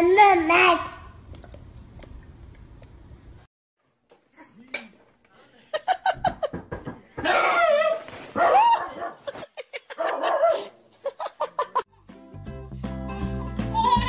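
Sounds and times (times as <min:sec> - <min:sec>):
dog barking and yowling: 0:07.3 - 0:09.3, 0:10.0 - 0:10.7
music: 0:11.9 - 0:14.0.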